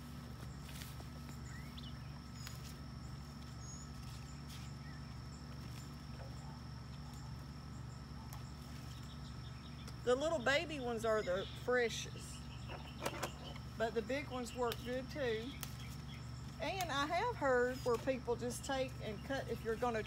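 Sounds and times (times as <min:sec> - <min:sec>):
faint insect drone: 0:00.0 - 0:20.0
low hum: 0:00.0 - 0:20.0
bird chirps: 0:01.2 - 0:02.6, 0:11.1 - 0:13.7.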